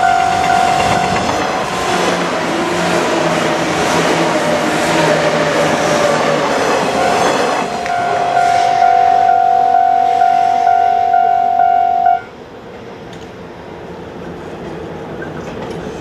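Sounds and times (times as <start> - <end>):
level crossing bell dinging: 0.0 - 1.3, 7.0 - 12.3.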